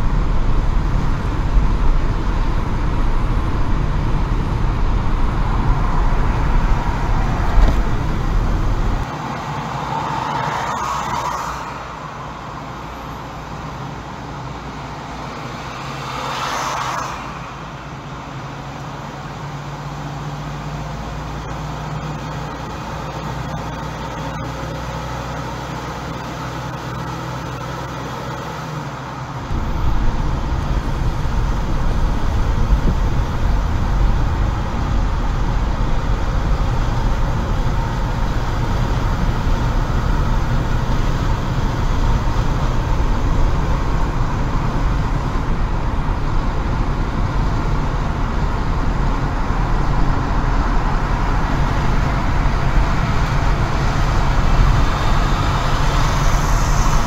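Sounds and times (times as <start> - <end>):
heavy low rumble: 0.0 - 9.1, 29.4 - 57.0
passing vehicles whooshing: 0.0 - 20.8, 28.7 - 57.0
road and engine noise: 0.0 - 57.0.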